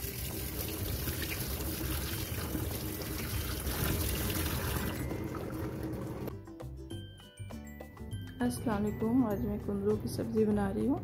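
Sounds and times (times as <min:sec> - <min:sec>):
tap water splashing into sink: 0:00.0 - 0:05.0.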